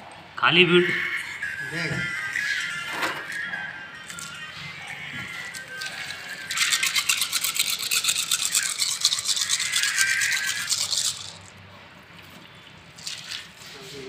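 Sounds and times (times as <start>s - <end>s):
stiff brush scrubbing: 5.5s - 11.5s.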